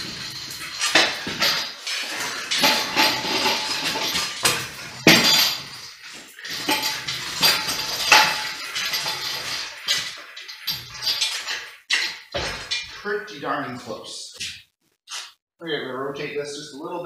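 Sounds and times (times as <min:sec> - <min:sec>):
metal clanks and clinks: 0:00.0 - 0:13.1.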